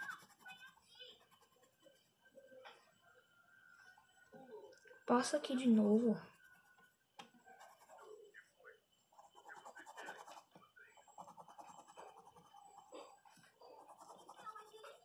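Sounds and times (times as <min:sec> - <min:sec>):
pencil scratching on paper: 0:00.0 - 0:02.0, 0:06.2 - 0:08.2, 0:09.1 - 0:15.0.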